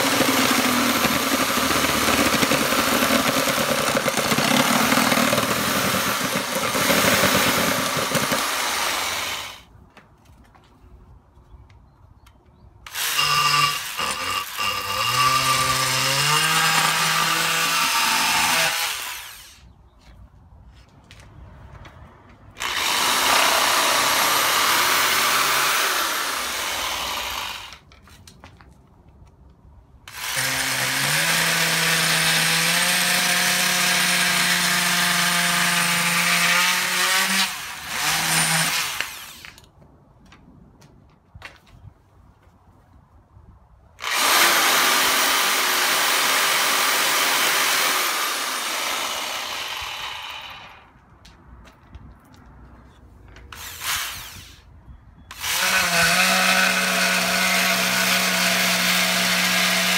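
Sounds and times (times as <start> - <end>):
power tool cutting wood: 0.0 - 9.6, 12.9 - 19.6, 22.6 - 27.8, 30.1 - 39.6, 44.0 - 50.9, 53.6 - 54.6, 55.3 - 59.9
multi-tool cutting drywall: 0.0 - 9.7, 12.9 - 19.6, 22.6 - 27.8, 30.1 - 39.7, 44.0 - 50.9, 53.5 - 54.7, 55.3 - 59.9.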